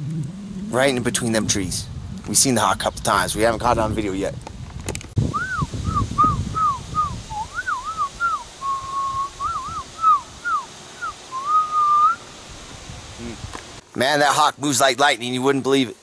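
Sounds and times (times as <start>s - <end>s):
man whistling bird calls: 5.3s - 12.2s.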